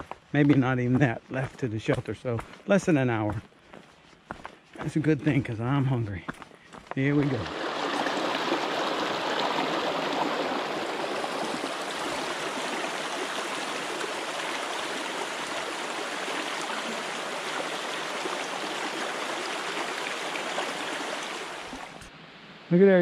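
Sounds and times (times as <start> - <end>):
creek running over rocks: 0.0 - 3.4, 6.8 - 22.1.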